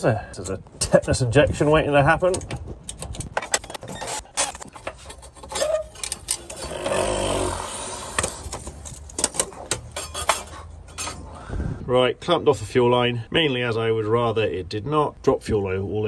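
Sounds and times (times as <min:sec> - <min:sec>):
metal tools and clamps clinking: 0:02.2 - 0:07.3, 0:07.9 - 0:11.3
rustling scrape: 0:03.5 - 0:11.4.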